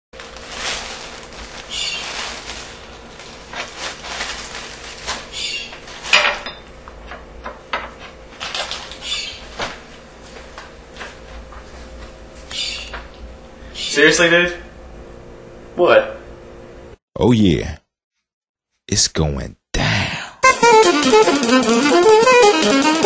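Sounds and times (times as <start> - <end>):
plastic bag crinkling: 0.2 - 6.2, 8.4 - 9.1.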